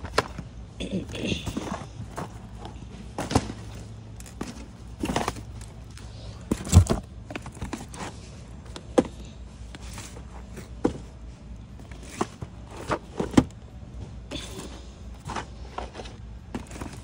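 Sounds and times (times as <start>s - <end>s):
low steady hum: 0.0s - 17.0s
cardboard boxes knocking and scuffing: 1.2s - 5.8s, 6.4s - 13.5s, 14.3s - 17.0s.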